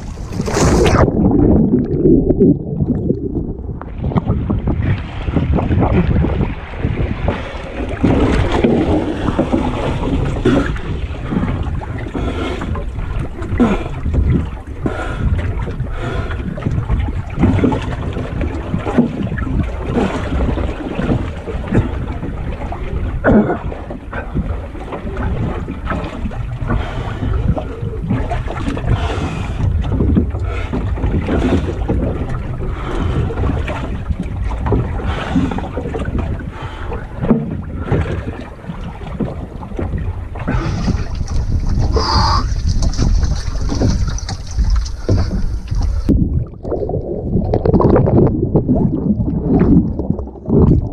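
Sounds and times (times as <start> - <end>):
water sloshing around boat: 0.0 - 1.6, 2.2 - 50.9
wind buffeting microphone: 0.0 - 50.9
knocks from hull and rigging: 3.8 - 46.9.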